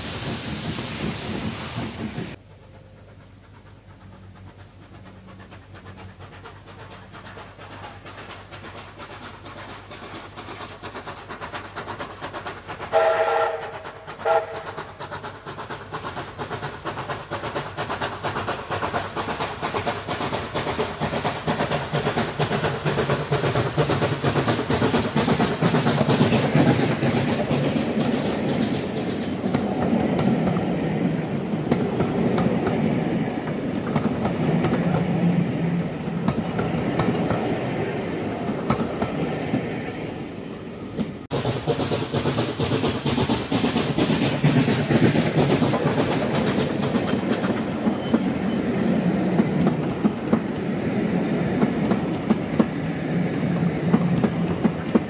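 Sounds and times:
train running noise: 0.0s - 55.0s
steam locomotive whistle: 12.9s - 14.8s.

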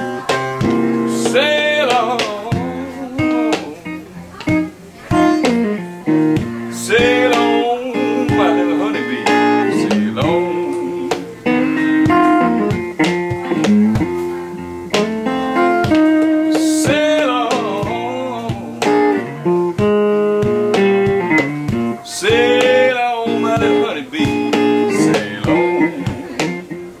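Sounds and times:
person singing: 0.0s - 5.8s, 6.4s - 14.6s, 15.2s - 19.8s, 21.8s - 27.0s
acoustic guitar blues: 0.0s - 27.0s.

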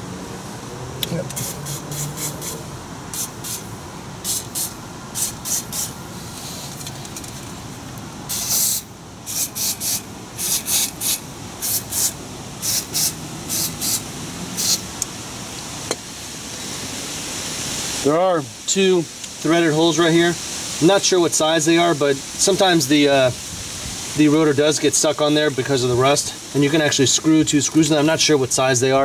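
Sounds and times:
aerosol spray hissing: 1.3s - 6.8s, 8.3s - 14.9s.

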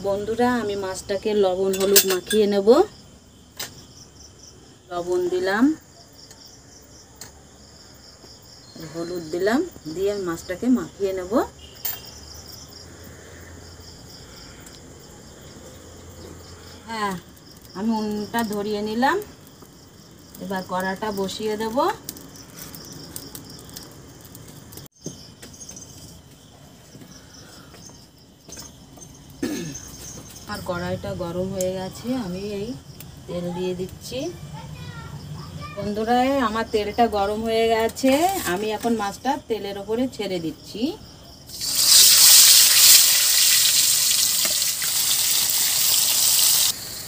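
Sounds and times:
crickets chirping: 0.0s - 47.0s
metallic clinks of iron pan: 1.7s - 2.5s
fish sizzling in hot oil: 41.5s - 47.0s.

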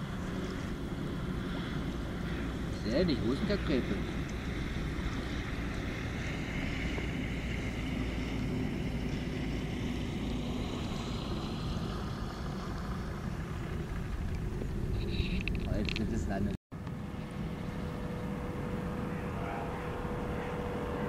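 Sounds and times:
light aircraft engine hum: 0.0s - 21.0s
wind noise on microphone: 4.0s - 16.6s.

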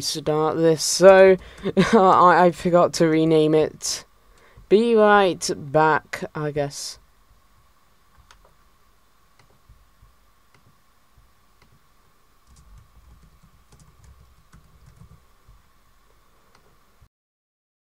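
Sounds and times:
keyboard clicks: 12.4s - 15.2s.

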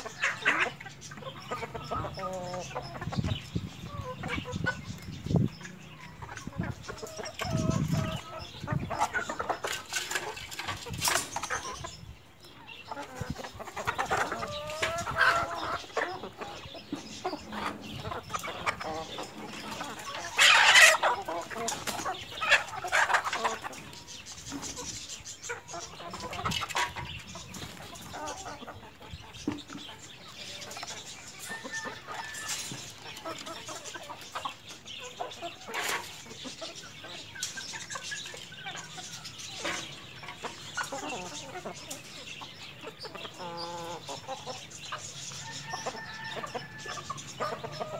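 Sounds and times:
chickens clucking and calling: 0.0s - 47.9s
loud chicken squawk: 20.0s - 23.6s.

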